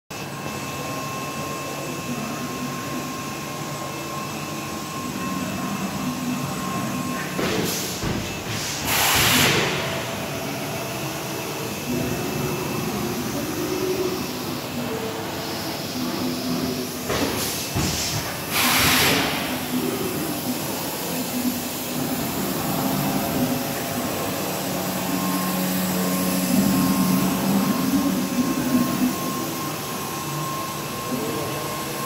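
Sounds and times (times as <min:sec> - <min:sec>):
machine hum with thin whine: 0:00.1 - 0:08.8, 0:09.6 - 0:32.0
loud hissing bursts: 0:08.6 - 0:09.8, 0:17.4 - 0:20.1.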